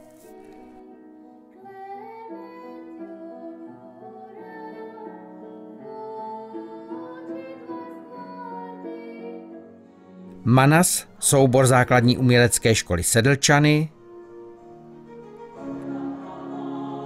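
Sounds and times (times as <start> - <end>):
women singing long held notes: 0.0 - 9.6, 15.5 - 17.0
slow sustained backing music: 0.0 - 17.0.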